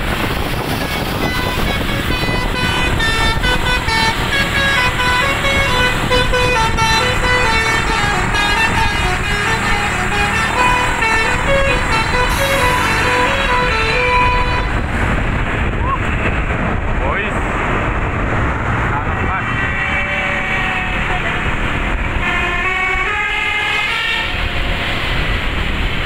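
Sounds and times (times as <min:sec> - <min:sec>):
rumble of scooters and traffic: 0:00.0 - 0:26.0
bus horn playing a tune: 0:00.2 - 0:15.2, 0:19.5 - 0:25.0.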